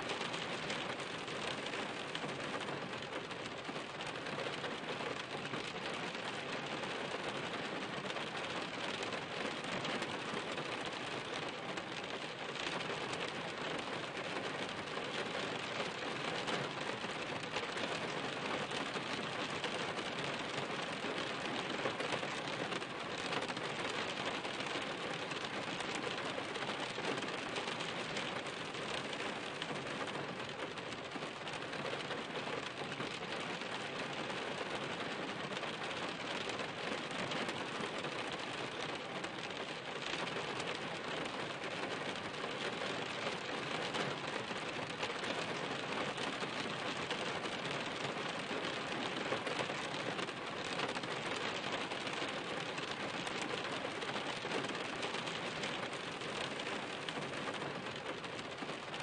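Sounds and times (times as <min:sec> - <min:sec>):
steady rain falling: 0:00.0 - 0:59.0.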